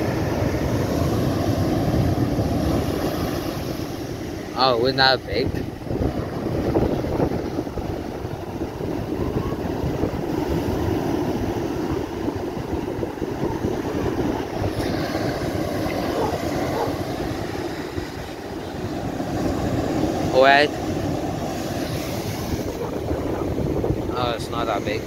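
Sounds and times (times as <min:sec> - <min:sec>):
surf breaking on beach: 0:00.0 - 0:25.0
wind buffeting microphone: 0:05.2 - 0:25.0.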